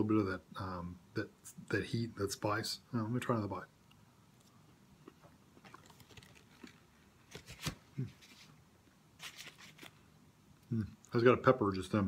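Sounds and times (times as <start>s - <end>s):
man chewing food: 3.8s - 7.2s.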